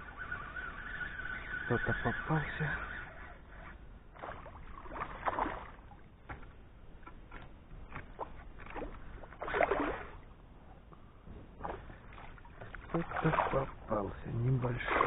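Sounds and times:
fish splashing in water: 4.1s - 6.0s, 8.0s - 10.3s, 11.6s - 13.9s, 14.6s - 15.0s.

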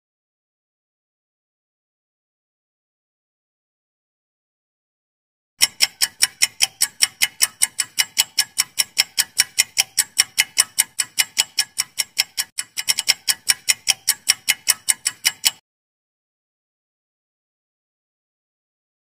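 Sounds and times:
clock ticking: 5.6s - 15.6s.

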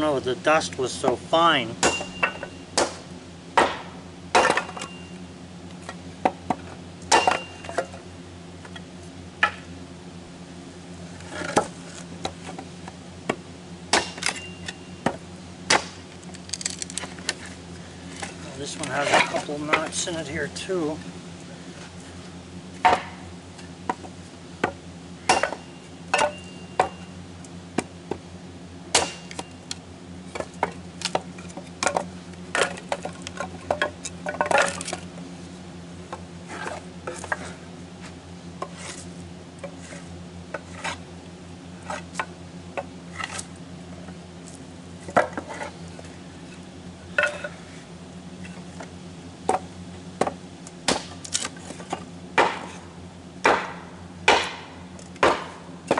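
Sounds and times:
steady low hum: 0.0s - 55.9s
blade chopping wood: 1.8s - 5.0s, 6.2s - 7.9s, 13.3s - 16.1s, 22.8s - 23.2s, 23.9s - 27.0s, 28.9s - 29.5s, 50.2s - 52.8s, 53.4s - 55.9s
wood pieces clattering: 16.4s - 17.4s.

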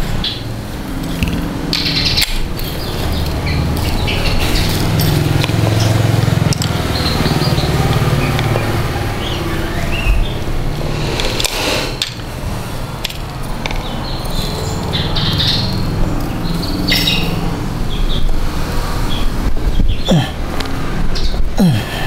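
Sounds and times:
engine running: 0.0s - 21.1s
birds chirping: 0.0s - 22.0s
engine parts being handled: 0.9s - 8.8s, 10.8s - 14.6s.

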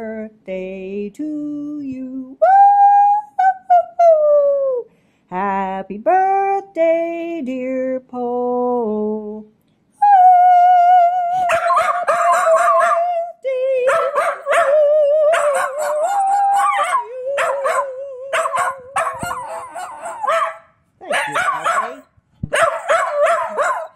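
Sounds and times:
dog howling and yipping: 11.4s - 13.2s, 13.9s - 22.0s, 22.6s - 23.9s.

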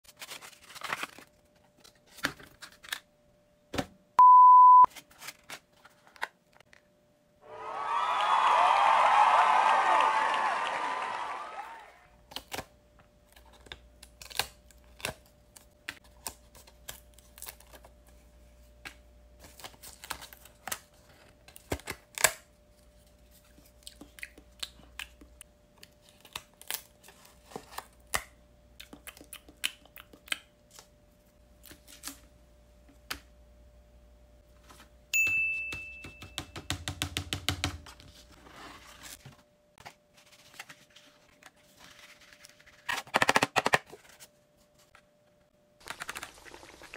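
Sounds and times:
short high beep: 4.2s - 4.9s.

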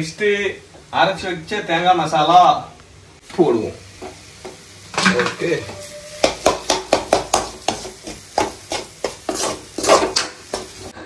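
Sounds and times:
sizzling in a pan: 3.2s - 11.0s
spoon scraping against pan: 5.0s - 11.0s.

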